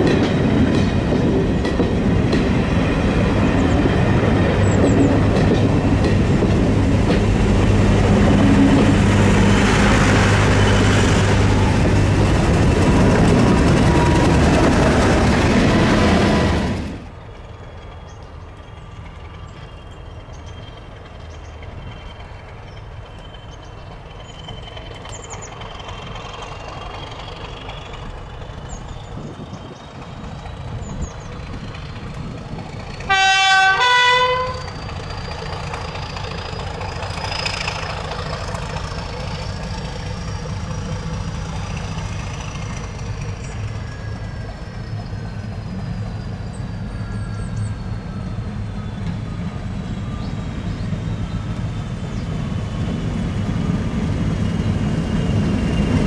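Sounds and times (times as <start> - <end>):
diesel locomotive engine running: 0.0 - 56.0
two-tone train horn: 33.1 - 34.8.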